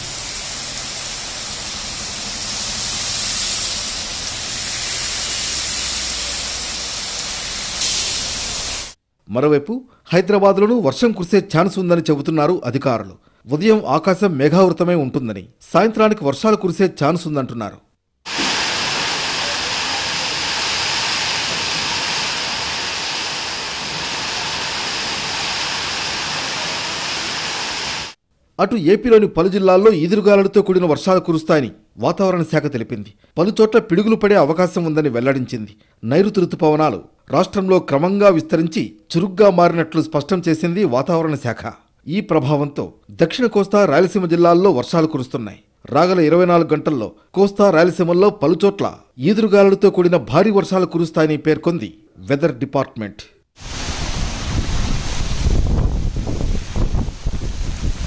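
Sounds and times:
heavy rain on pavement: 0:00.0 - 0:09.0, 0:18.3 - 0:28.2, 0:53.6 - 0:58.0
gusty wind: 0:53.6 - 0:58.0.

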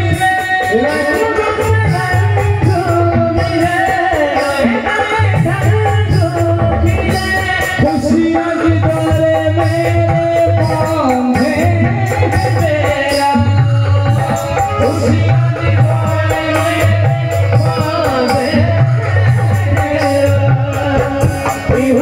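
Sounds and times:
steady drum rhythm: 0:00.0 - 0:22.0.

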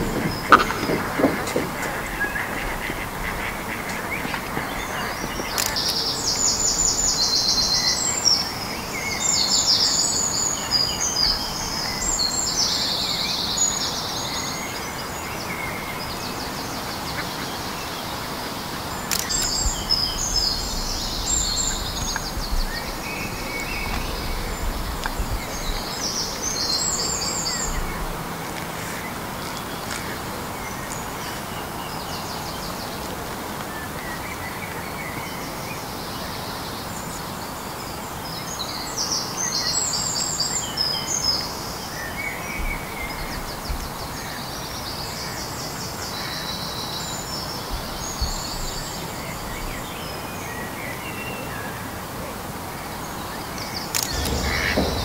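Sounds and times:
background hiss: 0:00.0 - 0:55.0
songbirds trilling and chirping: 0:00.0 - 0:55.0.

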